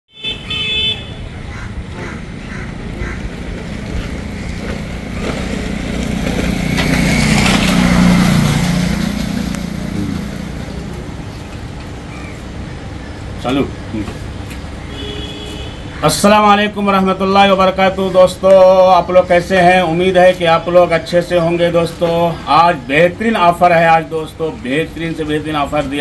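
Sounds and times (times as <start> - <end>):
road traffic passing: 0.1 - 26.0
heavy vehicle passing: 1.2 - 14.8.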